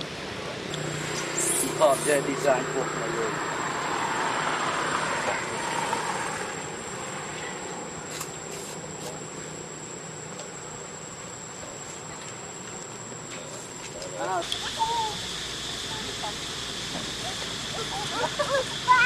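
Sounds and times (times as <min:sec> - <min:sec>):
thin high tone: 0:00.8 - 0:03.4
hiss: 0:14.3 - 0:19.0.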